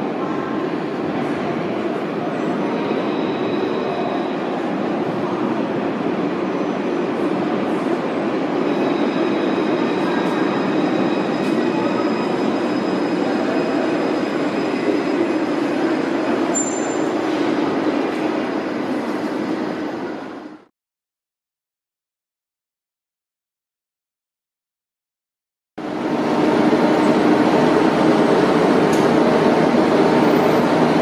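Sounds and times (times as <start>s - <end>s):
tram rumble: 0.0s - 20.7s, 25.8s - 31.0s
wheel squeal: 16.5s - 17.2s.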